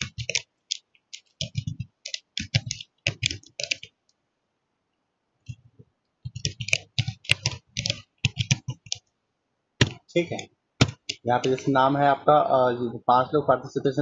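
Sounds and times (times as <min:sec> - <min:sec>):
typing on computer keyboard: 0:00.0 - 0:04.0, 0:06.2 - 0:09.1, 0:09.8 - 0:11.7.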